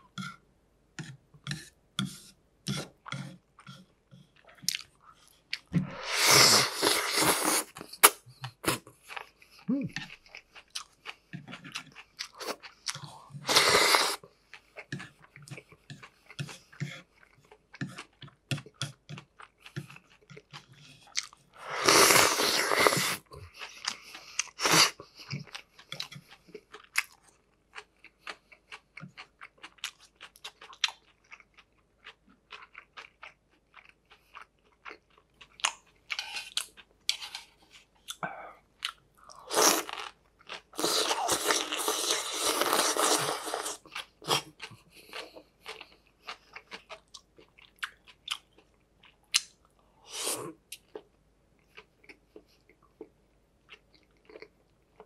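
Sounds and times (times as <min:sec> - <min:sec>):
noodles being slurped: 0:05.9 - 0:08.8, 0:13.4 - 0:14.2, 0:21.6 - 0:25.0, 0:39.4 - 0:40.2, 0:40.8 - 0:44.5.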